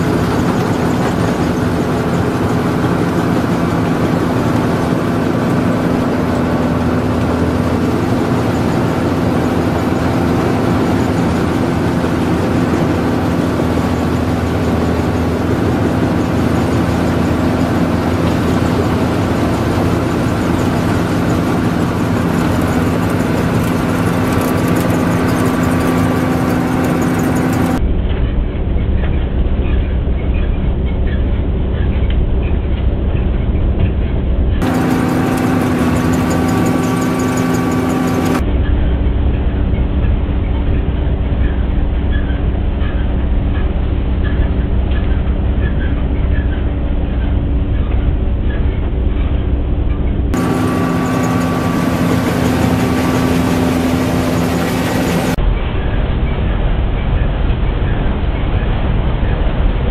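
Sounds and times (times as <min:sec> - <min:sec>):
conveyor carrying grapes: 0:00.0 - 0:27.8, 0:34.6 - 0:48.2, 0:50.4 - 0:55.6
harvester engine droning: 0:00.0 - 0:59.9.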